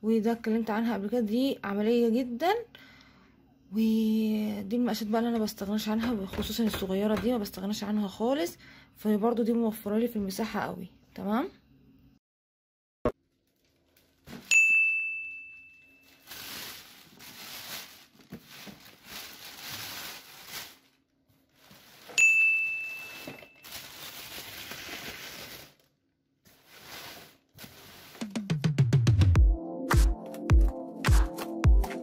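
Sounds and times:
plastic bag crinkling: 0:13.2 - 0:14.5, 0:16.0 - 0:28.4
bright bell-like ding: 0:14.5 - 0:16.1, 0:22.2 - 0:23.6.

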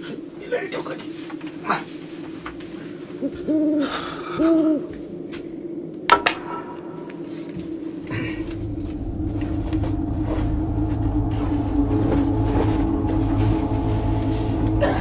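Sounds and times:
owl hooting: 0:00.0 - 0:05.2, 0:06.5 - 0:15.0
low rumble: 0:06.4 - 0:15.0.

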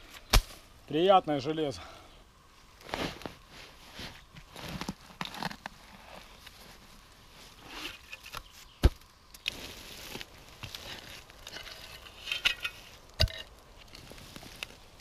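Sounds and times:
spade scraping soil: 0:02.8 - 0:06.6, 0:07.5 - 0:08.7, 0:09.4 - 0:14.8.

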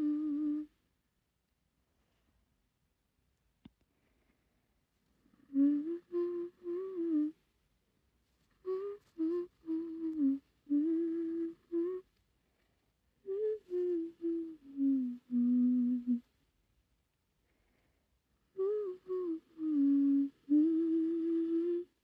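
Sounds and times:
woman humming a melody: 0:00.0 - 0:00.8, 0:05.4 - 0:07.4, 0:08.6 - 0:12.1, 0:13.2 - 0:16.3, 0:18.6 - 0:22.0.

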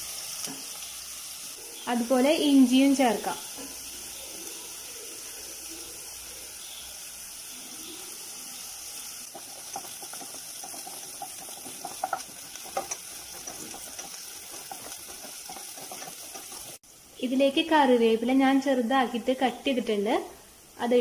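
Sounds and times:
onion sizzling in oil: 0:00.0 - 0:21.0
wooden spatula scraping a pot: 0:09.3 - 0:16.8.

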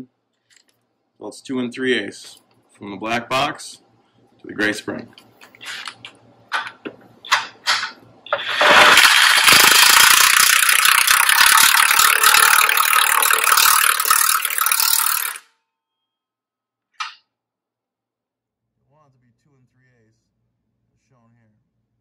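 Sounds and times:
impact wrench hammering: 0:06.6 - 0:15.5.

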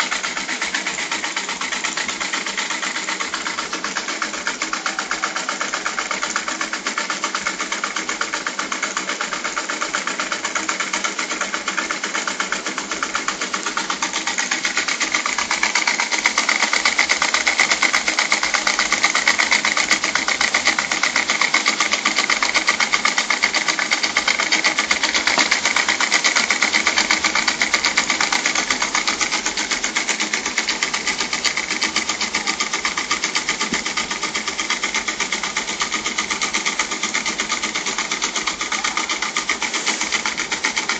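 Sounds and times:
model steam engine running: 0:00.0 - 0:40.9.

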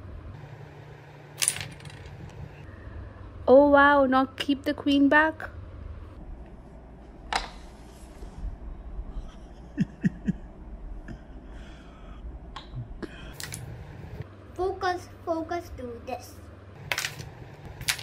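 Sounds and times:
low steady hum: 0:00.0 - 0:18.0
carrom striker and coins clicking: 0:01.4 - 0:02.4, 0:16.8 - 0:18.0.

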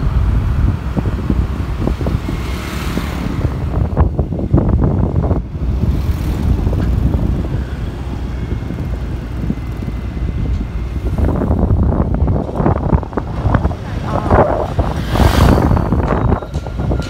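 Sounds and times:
traffic noise: 0:00.0 - 0:17.0
wind rumbling on microphone: 0:00.0 - 0:17.0.

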